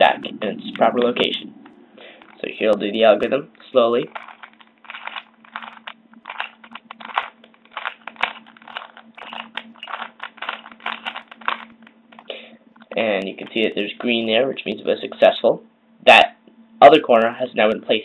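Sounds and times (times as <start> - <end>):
puzzle cube clicking and scraping: 2.0 - 12.3.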